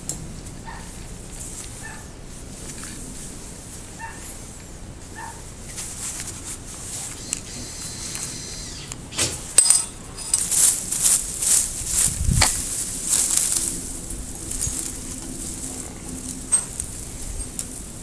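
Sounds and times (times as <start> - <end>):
leaves and twigs rustling: 0.0 - 18.0
distant dog barking: 0.6 - 1.0, 1.8 - 2.2, 3.9 - 4.4, 5.1 - 5.5.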